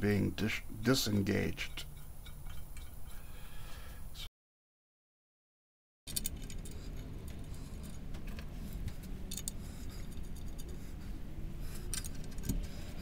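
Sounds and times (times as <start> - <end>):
steady low hum: 0.0 - 4.3, 6.1 - 13.0
metal bolts clinking: 6.1 - 8.4.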